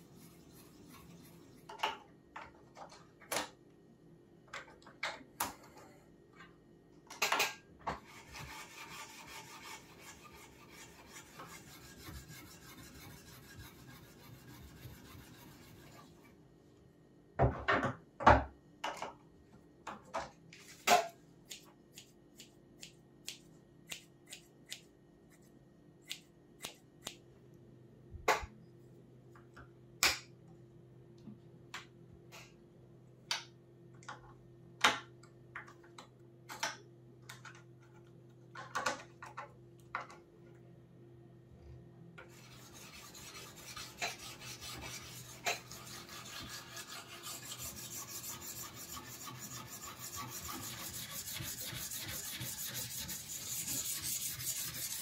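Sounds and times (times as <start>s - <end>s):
stone rasping on knife edge: 42.4s - 55.0s.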